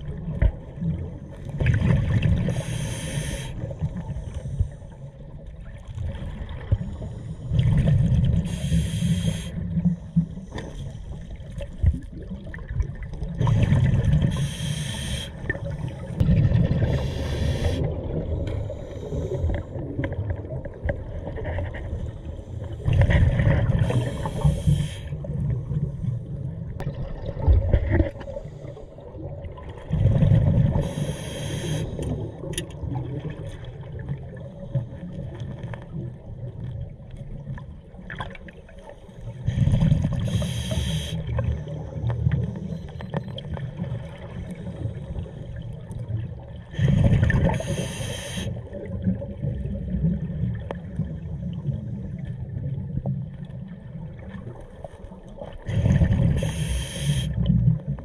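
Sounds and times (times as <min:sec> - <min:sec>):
regulator inhalation hiss: 0:02.5 - 0:03.6, 0:08.5 - 0:09.6, 0:14.3 - 0:15.4, 0:17.0 - 0:17.9, 0:23.8 - 0:25.1, 0:30.8 - 0:32.0, 0:40.3 - 0:41.2, 0:47.6 - 0:48.6, 0:56.4 - 0:57.4.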